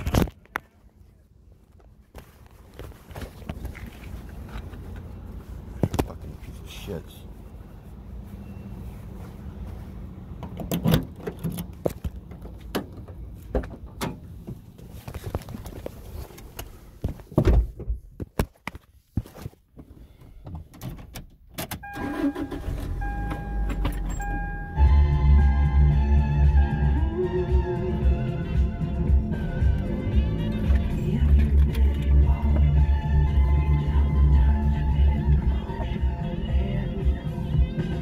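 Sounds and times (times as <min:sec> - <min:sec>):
phone handling clicks and rustling: 0:00.0 - 0:00.7
music: 0:24.8 - 0:38.0.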